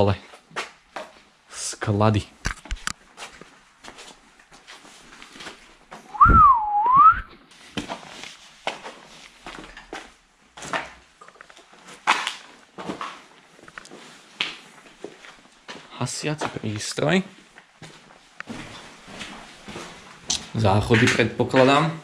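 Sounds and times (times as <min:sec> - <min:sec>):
footsteps scuffing on gritty floor: 0:03.0 - 0:05.8, 0:17.3 - 0:20.6
short rising whistle: 0:06.1 - 0:07.3.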